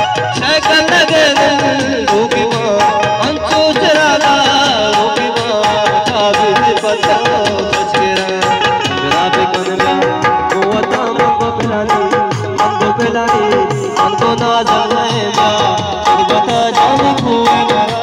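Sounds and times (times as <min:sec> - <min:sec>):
hand drum rhythm: 0:00.0 - 0:18.0
harmonium melody: 0:00.0 - 0:18.0
person singing: 0:00.0 - 0:18.0.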